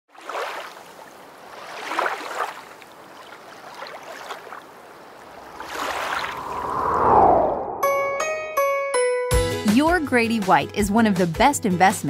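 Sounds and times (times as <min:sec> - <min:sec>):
water rushing and splashing: 0:00.1 - 0:07.5.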